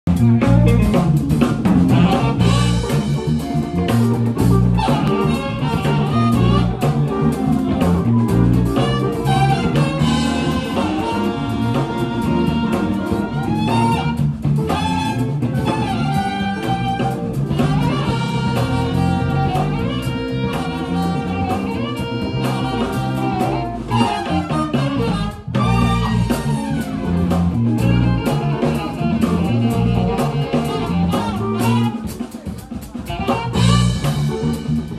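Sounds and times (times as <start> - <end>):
drum kit: 0.0 - 34.9
guitar: 0.0 - 34.9
live jazz band playing: 0.1 - 34.9.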